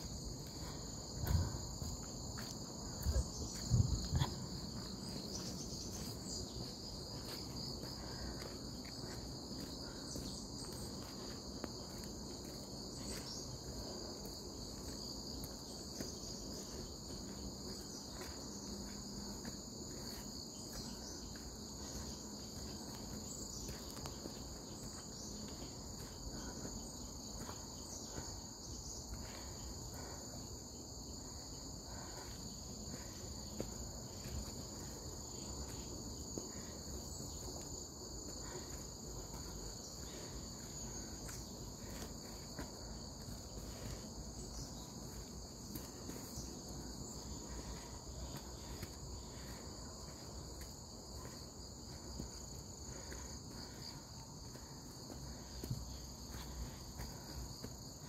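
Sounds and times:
insects trilling: 0.0 - 58.0.

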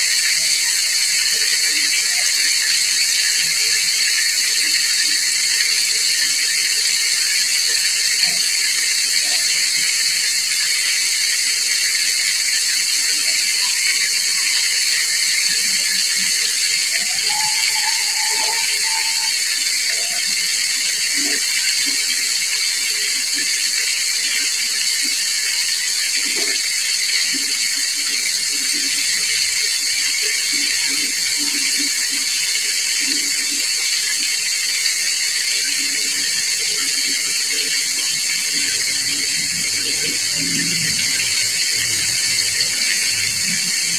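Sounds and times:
hot oil sizzling: 0.0 - 43.9.

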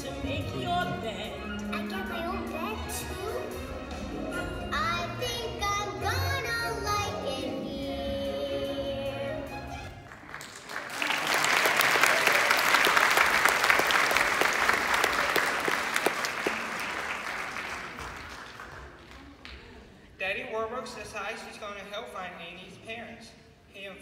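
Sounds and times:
music: 0.0 - 10.4
audience clapping: 9.9 - 19.9.

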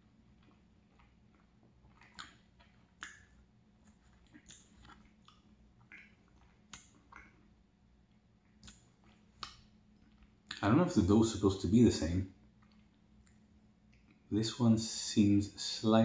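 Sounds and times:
person chewing with wet mouth clicks: 0.1 - 10.6, 12.5 - 14.3.

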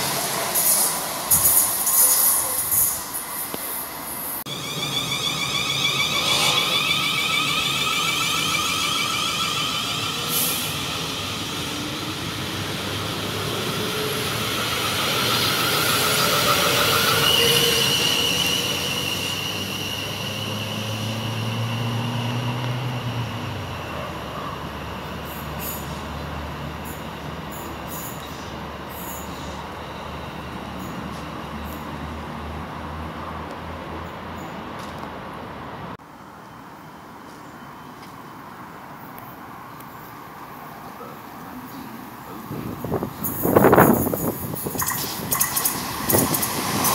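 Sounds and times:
wheels rumbling on rail: 0.0 - 36.0, 36.8 - 46.9
traction motors whining: 4.3 - 23.1.

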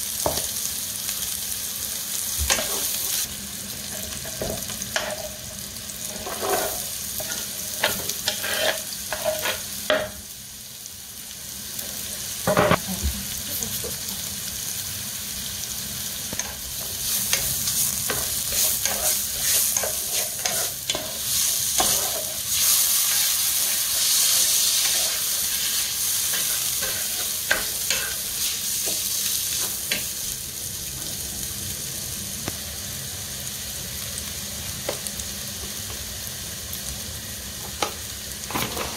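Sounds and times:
food sizzling in hot oil: 0.0 - 38.9
wooden spatula scraping pan: 6.1 - 9.6.

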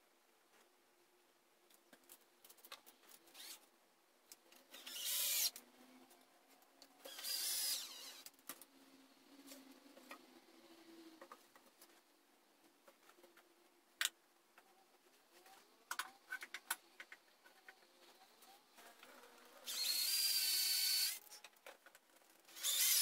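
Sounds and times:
power drill running: 7.1 - 8.2, 19.7 - 21.2, 22.6 - 23.0.

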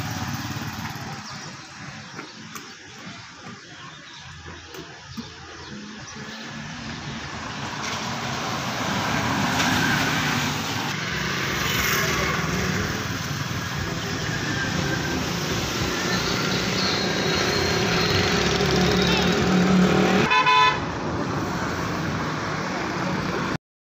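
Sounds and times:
vehicle engine running: 0.0 - 8.7.

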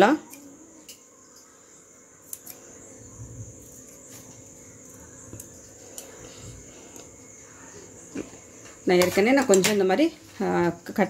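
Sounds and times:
high-pitched hiss: 0.0 - 11.0
scissors snipping: 2.2 - 2.7.

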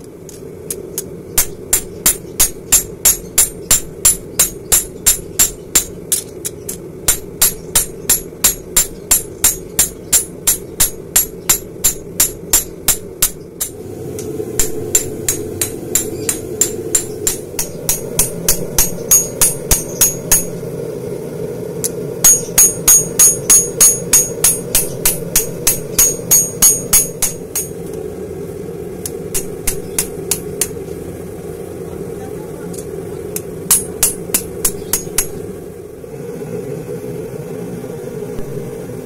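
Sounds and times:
low hum: 0.0 - 39.0
hammer striking blade on anvil: 1.4 - 20.6, 22.2 - 27.8, 29.3 - 30.8, 33.7 - 35.4.

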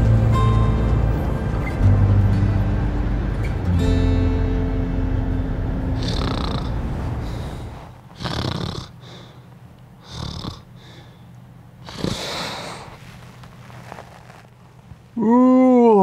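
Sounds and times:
music: 0.0 - 7.0
man snoring: 6.0 - 9.4, 10.0 - 10.8, 11.8 - 12.9.

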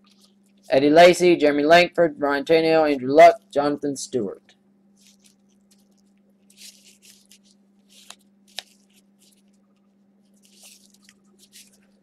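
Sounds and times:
cards swishing: 5.0 - 9.6, 10.3 - 12.0.

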